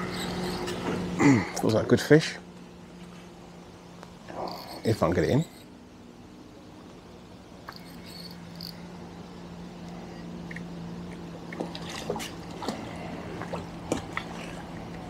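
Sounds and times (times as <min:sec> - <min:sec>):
low hum: 0:00.0 - 0:15.0
fish splashing in water: 0:11.3 - 0:15.0.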